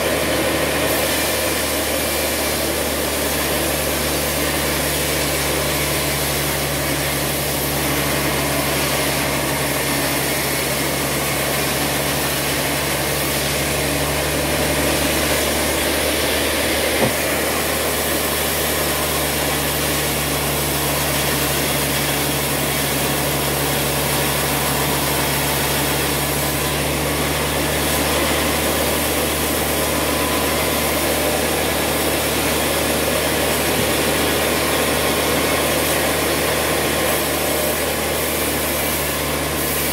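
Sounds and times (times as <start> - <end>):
band sawmill humming: 0.0 - 39.9
sharp knock: 17.0 - 17.3.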